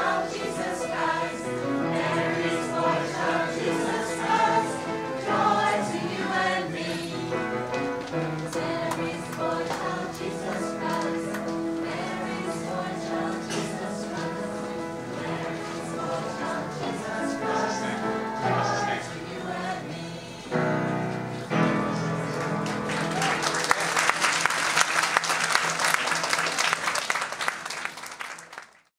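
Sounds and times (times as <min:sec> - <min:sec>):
choir singing: 0:00.0 - 0:22.9
audience applause: 0:22.3 - 0:28.9.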